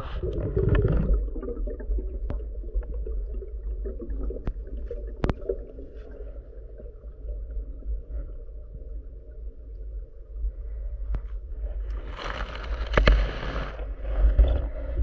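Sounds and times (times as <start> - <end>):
rush of bubbles underwater: 0.0 - 9.4
muffled low rumble of water: 0.0 - 15.0
sharp clicks underwater: 4.3 - 5.6.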